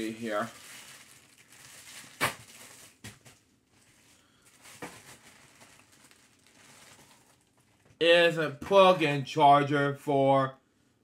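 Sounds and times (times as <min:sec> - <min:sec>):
package rustling: 0:00.0 - 0:08.0.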